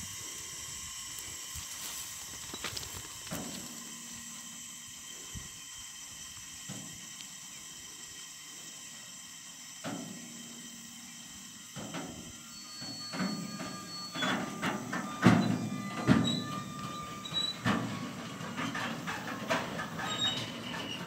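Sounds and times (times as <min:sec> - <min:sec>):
steady high hiss: 0:00.0 - 0:20.7
wheel squeal: 0:10.7 - 0:21.0
train wagons knocking: 0:12.9 - 0:21.0.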